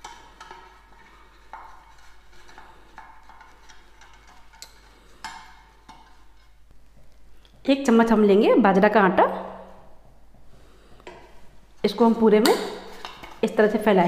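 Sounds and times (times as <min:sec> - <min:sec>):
brush scraping in a metal tin: 0:00.0 - 0:06.6.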